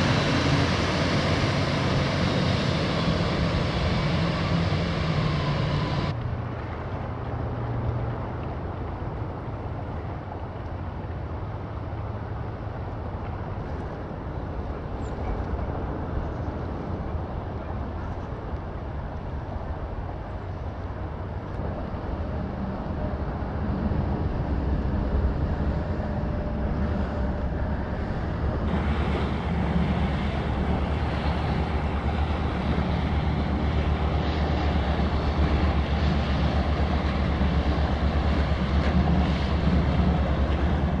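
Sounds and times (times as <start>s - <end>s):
water washing: 0.0s - 6.1s, 21.0s - 41.0s
wind buffeting microphone: 0.0s - 41.0s.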